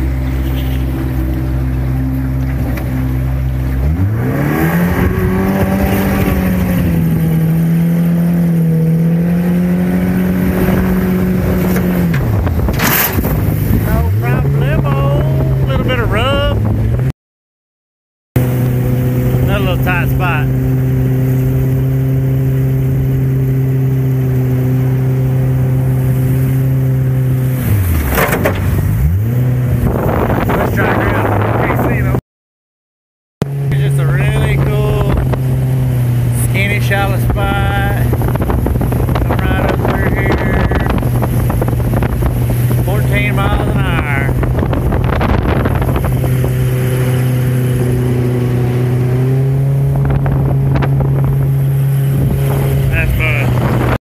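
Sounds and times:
outboard motor running: 0.0 - 17.1, 18.4 - 32.2, 33.4 - 54.0
rushing water: 0.0 - 17.1, 18.4 - 32.1, 33.4 - 54.0
wind: 0.0 - 17.1, 18.4 - 32.2, 33.4 - 54.0
rush of noise: 33.5 - 54.0.

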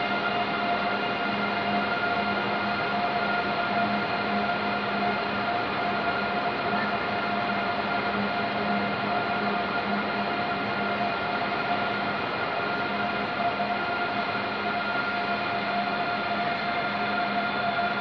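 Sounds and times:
electric trains humming: 0.0 - 18.0.

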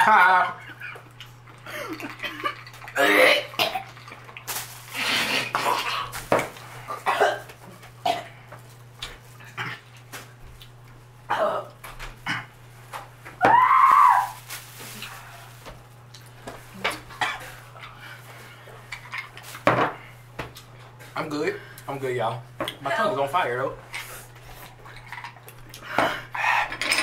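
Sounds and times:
people coughing and gasping: 1.6 - 3.9, 6.9 - 8.4, 17.2 - 17.5.

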